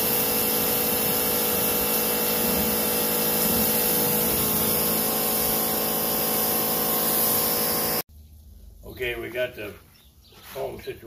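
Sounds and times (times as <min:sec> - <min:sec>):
pressure washer motor hum: 0:00.0 - 0:08.0
water spray hissing: 0:00.0 - 0:08.0.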